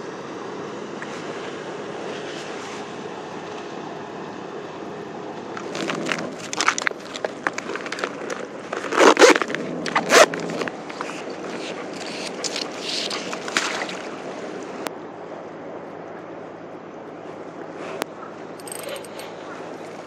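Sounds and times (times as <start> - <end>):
bag and rope scraping on concrete: 5.6 - 13.6
zipper rasping: 5.6 - 13.6, 18.6 - 19.3.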